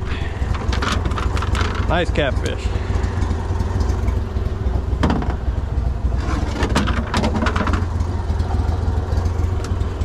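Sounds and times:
boat motor idling: 0:00.0 - 0:10.0
knocks and rattles on deck: 0:05.0 - 0:05.4, 0:06.5 - 0:08.0.

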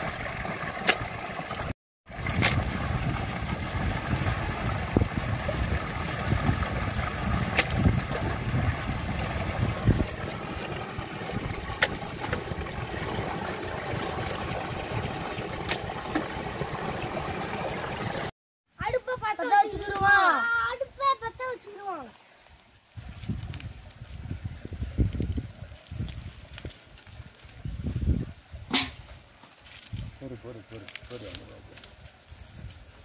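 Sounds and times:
water splashing and dripping: 0:00.0 - 0:18.3.

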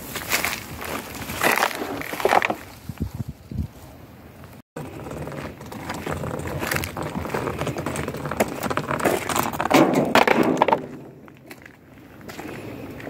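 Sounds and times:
pipe frame scraping on gritty ground: 0:00.0 - 0:03.3, 0:04.8 - 0:13.0
footsteps on dirt: 0:04.8 - 0:13.0.

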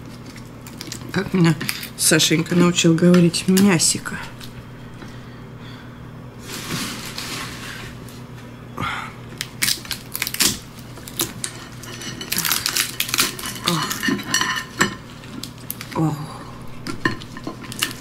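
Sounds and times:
crab shell cracking and snapping: 0:00.1 - 0:02.0, 0:09.3 - 0:16.0.

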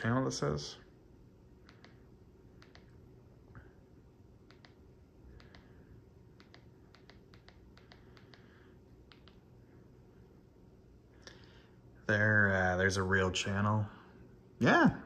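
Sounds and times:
low room hum: 0:00.0 - 0:15.0
remote control button clicks: 0:02.6 - 0:02.9.

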